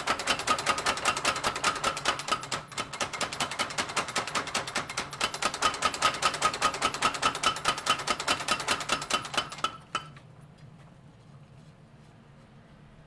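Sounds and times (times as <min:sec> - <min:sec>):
power hammer pounding steel: 0:00.0 - 0:10.2.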